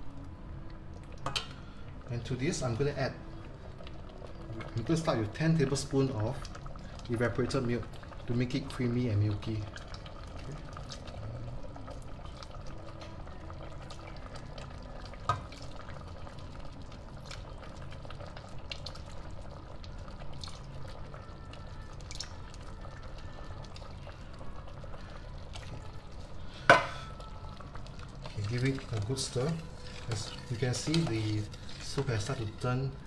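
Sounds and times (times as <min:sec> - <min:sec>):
milk pouring and dripping: 0:27.1 - 0:33.0.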